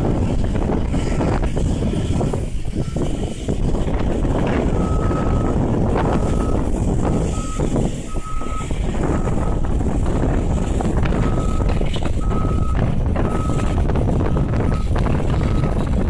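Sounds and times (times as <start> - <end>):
wind rumble on microphone: 0.0 - 16.0
reversing alarm beeping: 2.8 - 3.2, 4.7 - 9.7, 10.5 - 15.9.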